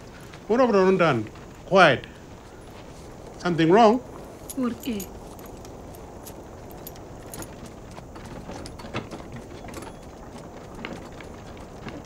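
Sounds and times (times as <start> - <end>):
outdoor background hiss: 0.0 - 12.0
metallic harness clinks: 4.2 - 12.0.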